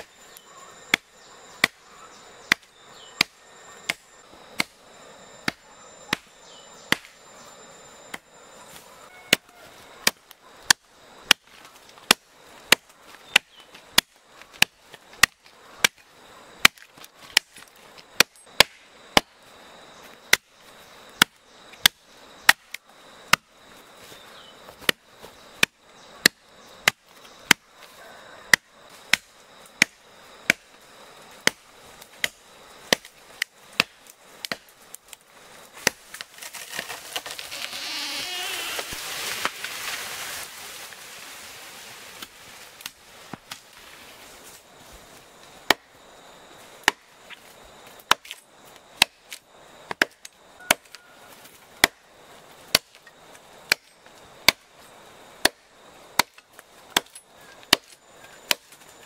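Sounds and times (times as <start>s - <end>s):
machete chopping wood: 0.9s - 1.8s, 2.4s - 4.8s, 5.4s - 7.2s, 9.3s - 19.3s, 20.3s - 20.5s, 21.2s - 23.5s, 24.8s - 25.0s, 25.6s - 27.7s, 28.5s - 30.7s, 31.4s - 34.8s, 35.8s - 37.4s, 45.6s - 45.9s, 46.8s - 47.4s, 48.0s - 48.4s, 49.0s - 51.0s, 51.8s - 52.0s, 52.7s - 53.0s, 53.6s - 54.7s, 55.4s - 58.8s.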